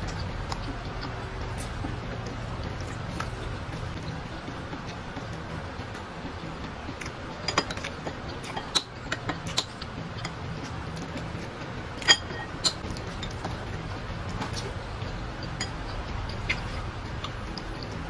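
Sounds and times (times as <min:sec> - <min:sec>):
spoon clinking against bowl: 0:12.0 - 0:13.5.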